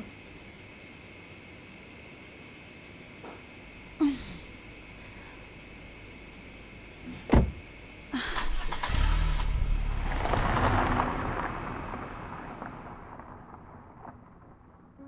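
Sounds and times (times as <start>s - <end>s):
car door slamming: 7.3s - 7.6s
car driving past: 8.6s - 13.1s.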